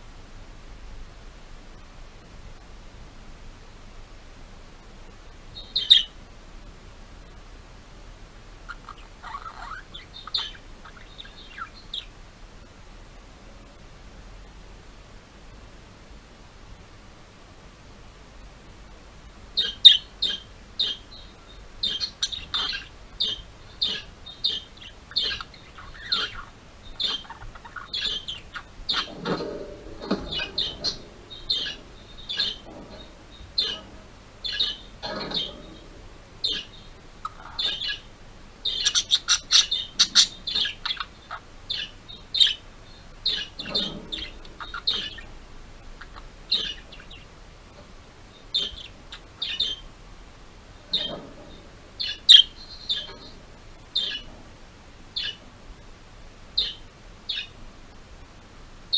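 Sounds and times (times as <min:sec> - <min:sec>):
budgerigar chirping: 0:08.7 - 0:12.1, 0:19.6 - 0:35.8, 0:36.4 - 0:42.6, 0:43.2 - 0:45.3, 0:46.0 - 0:47.3, 0:48.5 - 0:49.9, 0:50.9 - 0:51.2, 0:52.0 - 0:53.4, 0:54.0 - 0:54.3, 0:55.2 - 0:55.4, 0:56.6 - 0:57.5
budgerigar chatter: 0:19.6 - 0:21.2, 0:21.8 - 0:38.1, 0:38.7 - 0:45.3.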